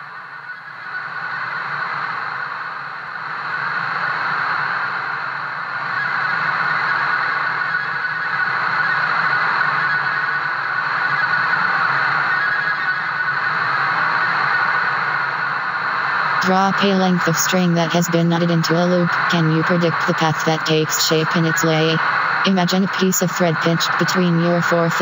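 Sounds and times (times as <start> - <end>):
droning hiss: 0.0 - 25.0
thin high whine: 0.0 - 25.0
low hum: 12.9 - 25.0.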